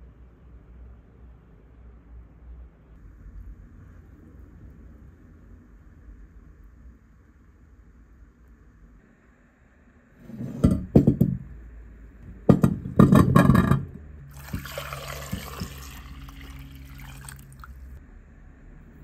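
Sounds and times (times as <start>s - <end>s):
water pouring into pan: 14.3s - 18.0s.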